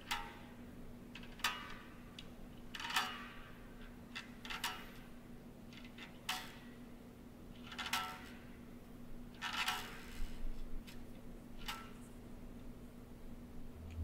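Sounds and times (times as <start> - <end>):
steady low hum: 8.3 - 14.0.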